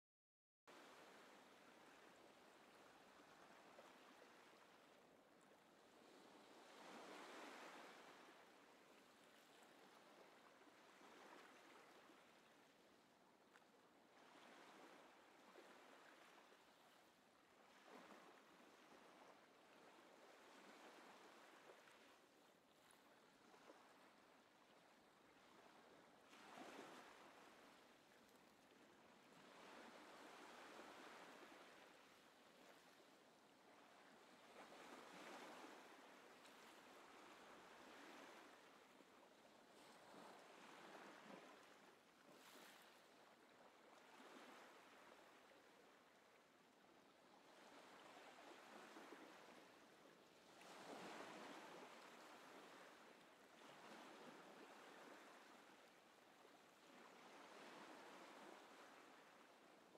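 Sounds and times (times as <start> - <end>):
soft waves washing: 0.7 - 59.9.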